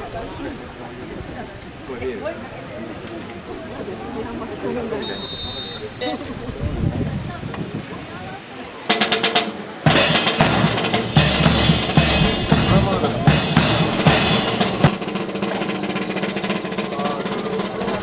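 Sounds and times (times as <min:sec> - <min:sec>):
drum-led music: 0:08.9 - 0:18.0.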